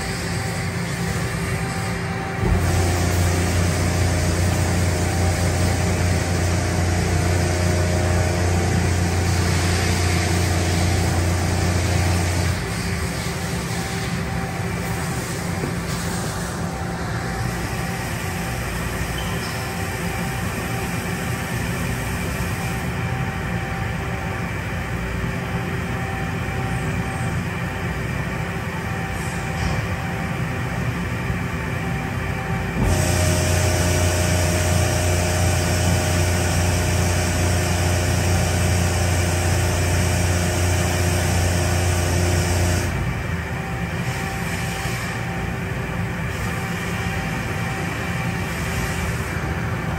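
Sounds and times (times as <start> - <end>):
machine hum: 0.0 - 49.9
coolant spraying hiss: 2.5 - 7.5, 32.8 - 42.9.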